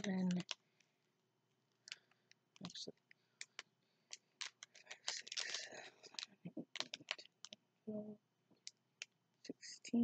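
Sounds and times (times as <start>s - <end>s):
plastic bags rustling and clicking: 1.8s - 7.6s.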